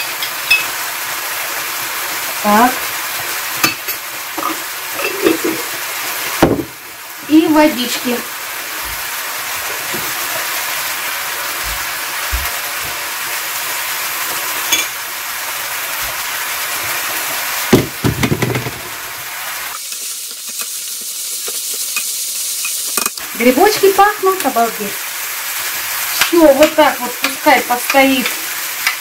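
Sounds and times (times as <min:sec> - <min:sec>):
mushrooms sizzling in a frying pan: 0:00.0 - 0:29.0
loud knock and clatter: 0:06.4 - 0:06.8, 0:17.7 - 0:18.8.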